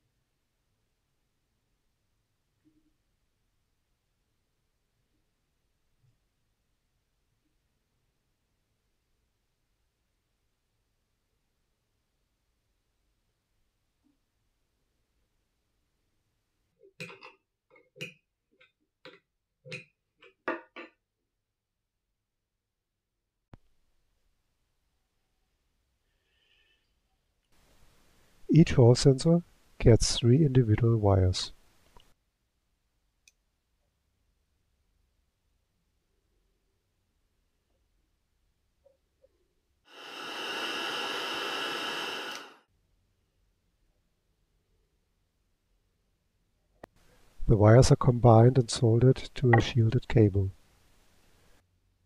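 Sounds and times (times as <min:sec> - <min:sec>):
heat gun blowing: 0:39.9 - 0:42.6.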